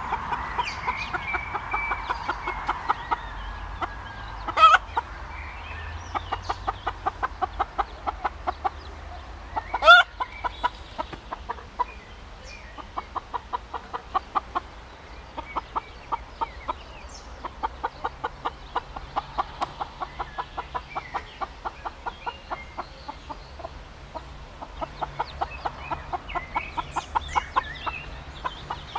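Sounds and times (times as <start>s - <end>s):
hen clucking: 0.0s - 28.9s
hen calling: 6.2s - 14.7s.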